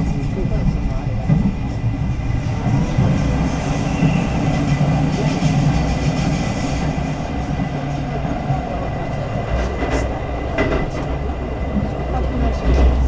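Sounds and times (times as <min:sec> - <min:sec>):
train rumbling inside carriage: 0:00.0 - 0:13.0.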